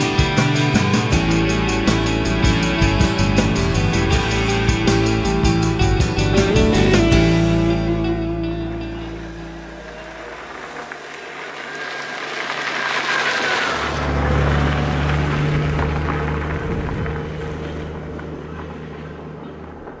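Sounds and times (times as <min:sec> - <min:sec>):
motorcycle engine passing: 0:06.4 - 0:20.0
tyres on gravel: 0:09.4 - 0:20.0.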